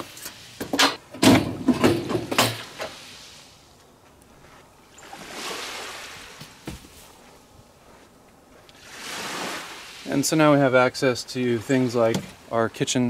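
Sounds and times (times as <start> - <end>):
mesh cage door rattling and clanking: 0.6 - 2.8
surf rushing: 5.0 - 6.7, 8.8 - 13.0.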